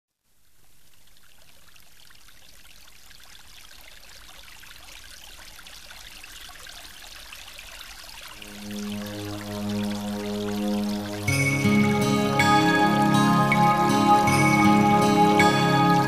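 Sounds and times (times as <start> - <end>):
waterfall rushing and splashing: 8.4 - 16.0.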